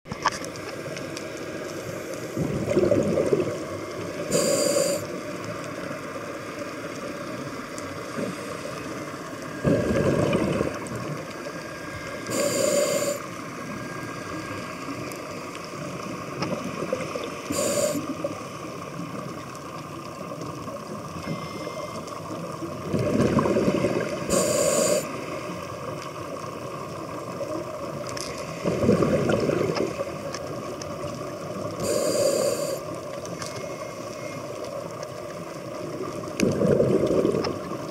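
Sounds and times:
steady hiss: 0:00.4 - 0:02.6, 0:03.5 - 0:22.8, 0:23.7 - 0:28.8, 0:29.6 - 0:36.4
exhaled bubbles underwater: 0:02.2 - 0:05.4, 0:09.4 - 0:13.3, 0:15.8 - 0:19.5, 0:22.2 - 0:32.8, 0:35.3 - 0:37.9
regulator hissing inhale: 0:04.1 - 0:05.2, 0:08.1 - 0:09.6, 0:11.6 - 0:14.9, 0:17.4 - 0:18.2, 0:21.2 - 0:22.0, 0:23.9 - 0:25.6, 0:31.8 - 0:34.4.

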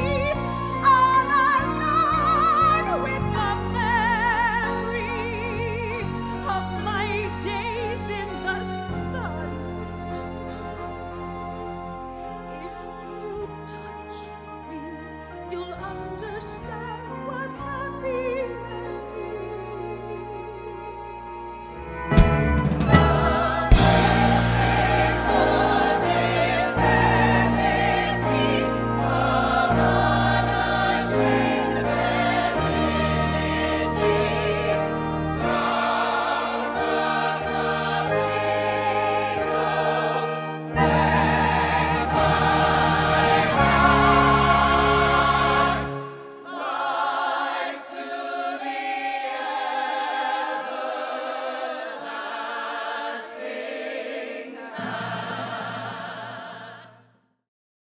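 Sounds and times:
choir singing with accompaniment: 0:18.6 - 0:57.2.

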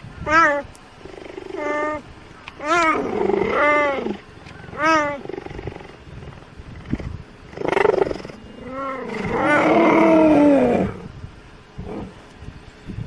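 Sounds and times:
cheetah calling: 0:00.2 - 0:06.1.

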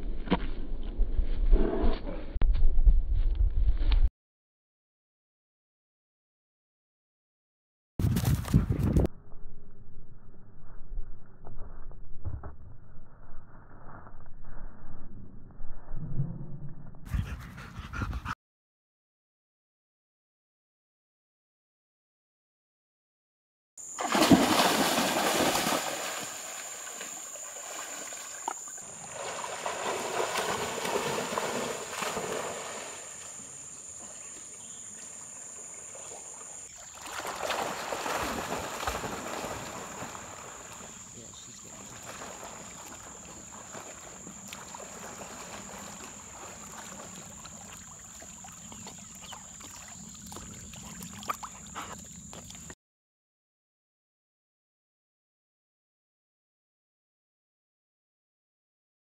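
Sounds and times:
dog splashing through water: 0:24.0 - 0:52.7
moving water: 0:24.0 - 0:52.8.

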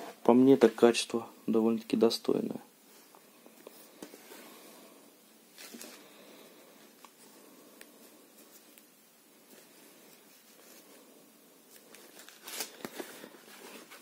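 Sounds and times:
fabric rustling: 0:05.5 - 0:14.0.

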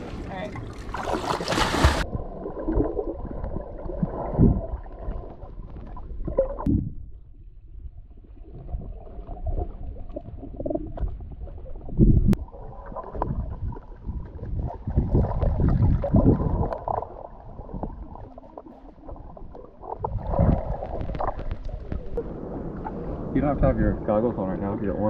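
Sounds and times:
splash of person jumping in water: 0:00.8 - 0:02.1
muffled underwater gurgling rumble: 0:02.0 - 0:25.0.

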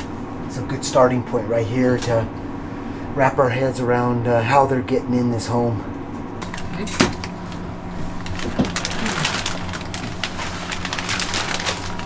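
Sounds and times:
steady hum: 0:00.0 - 0:12.0
plastic bag crinkling: 0:06.5 - 0:12.0.

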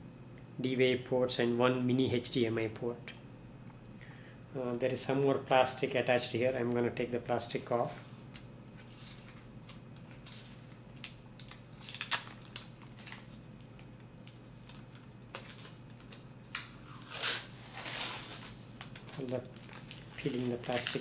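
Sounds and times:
plastic film crinkling: 0:08.2 - 0:21.0.

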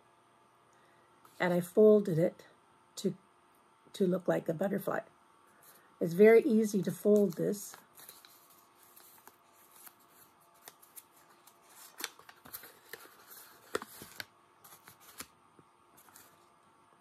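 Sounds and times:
paper crinkling: 0:07.1 - 0:16.6.

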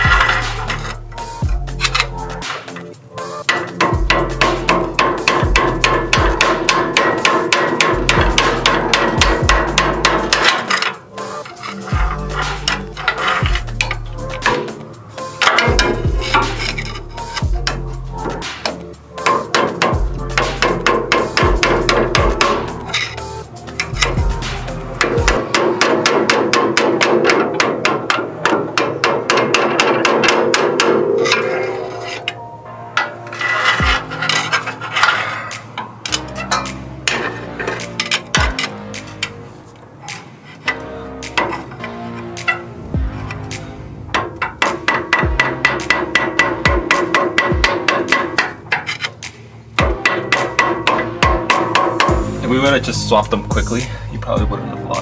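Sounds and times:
music with deep bass line: 0:00.0 - 0:27.8, 0:33.8 - 0:34.1, 0:36.1 - 0:39.2, 0:40.8 - 0:48.3, 0:49.8 - 0:55.0
rapid hammer blows on metal: 0:03.4 - 0:14.8, 0:15.4 - 0:23.2, 0:23.8 - 0:31.4, 0:42.4 - 0:52.3.

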